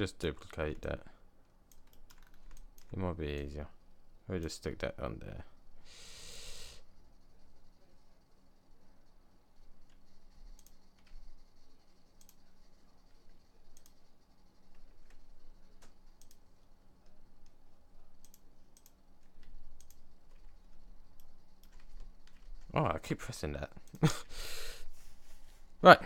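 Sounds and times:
faint steady hum: 0:00.0 - 0:26.0
computer mouse clicks: 0:00.4 - 0:03.5, 0:09.8 - 0:17.6, 0:18.2 - 0:22.7.

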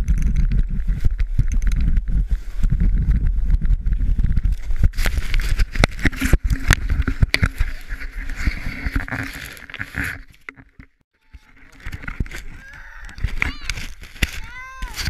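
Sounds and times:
sled scraping over snow: 0:00.0 - 0:10.5, 0:11.3 - 0:15.0
soft rustles: 0:03.9 - 0:10.6, 0:11.4 - 0:15.0
child's voice: 0:12.6 - 0:15.0.

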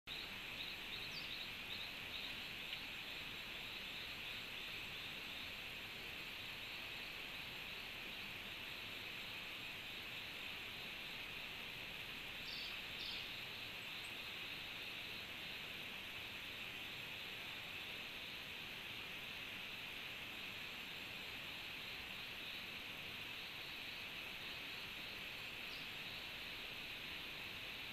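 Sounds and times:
high insect chirps: 0:00.1 - 0:27.9
soft even hiss: 0:00.1 - 0:27.9
tropical insects buzzing: 0:00.1 - 0:27.9.

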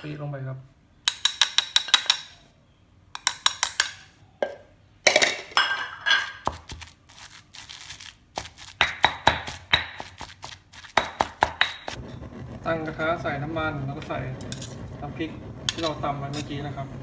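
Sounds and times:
pestle scraping in mortar: 0:06.1 - 0:12.3
stone pestle pounding in mortar: 0:06.4 - 0:06.9, 0:07.8 - 0:12.0.

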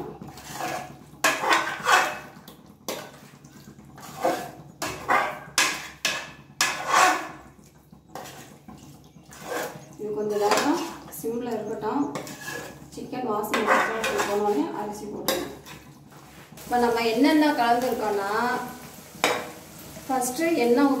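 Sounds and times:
metal spoon scraping a pot: 0:00.0 - 0:07.5, 0:08.1 - 0:16.6.

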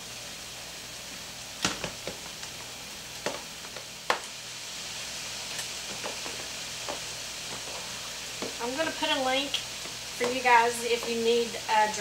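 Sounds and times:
skillet sizzling: 0:00.0 - 0:12.0.

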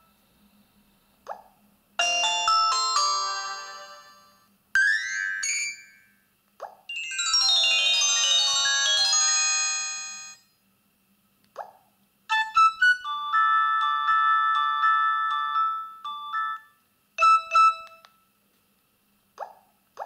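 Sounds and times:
bell-like chiming notes: 0:06.9 - 0:10.4.

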